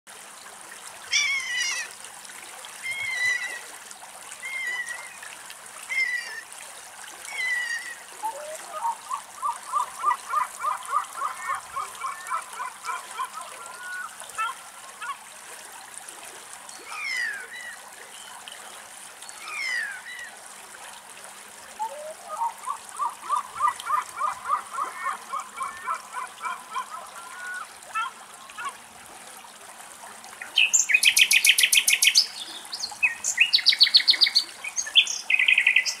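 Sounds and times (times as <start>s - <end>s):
birds calling and singing: 7.3s - 14.6s, 30.4s - 36.0s.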